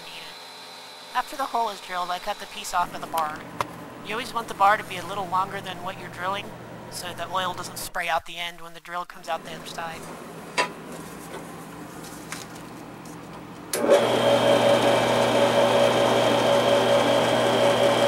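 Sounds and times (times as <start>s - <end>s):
bandsaw motor humming and whining: 0.0s - 3.2s, 13.7s - 18.0s.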